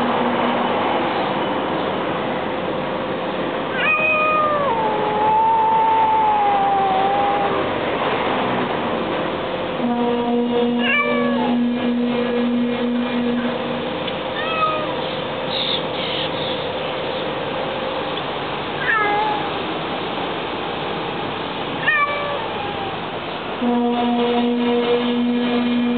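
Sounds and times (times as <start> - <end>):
cat meowing: 3.7 - 7.7, 10.8 - 11.6, 14.4 - 15.0, 18.8 - 19.6, 21.8 - 23.0.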